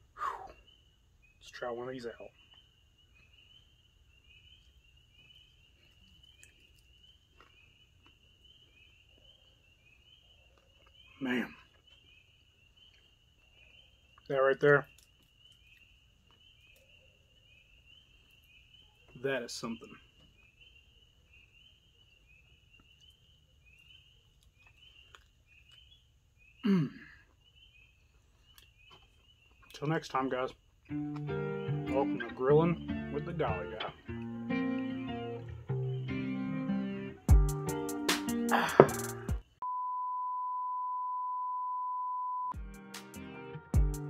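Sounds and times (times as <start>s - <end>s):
night insects chirping: 0.0s - 39.6s
man's short vocal sound: 26.6s - 27.2s, 38.5s - 39.1s.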